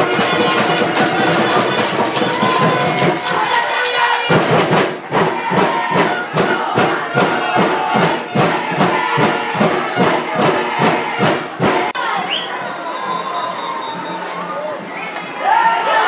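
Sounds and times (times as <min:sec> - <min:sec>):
music with quick drum beat: 0:00.0 - 0:12.0.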